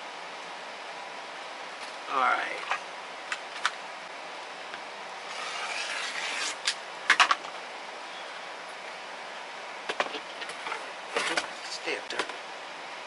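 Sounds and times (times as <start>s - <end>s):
rotary cutter slicing: 5.3s - 6.8s.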